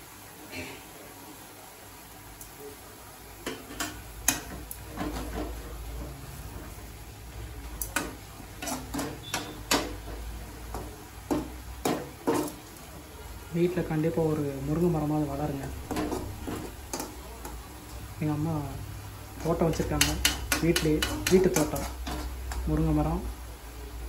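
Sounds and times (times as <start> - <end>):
ladle scraping metal pan: 3.7 - 6.8, 8.0 - 10.2.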